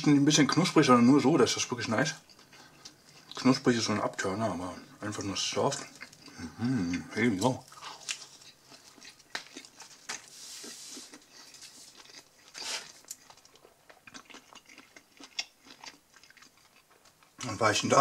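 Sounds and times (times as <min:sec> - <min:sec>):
person chewing food: 0:02.2 - 0:17.5
wet smacks of chewing: 0:07.7 - 0:17.4.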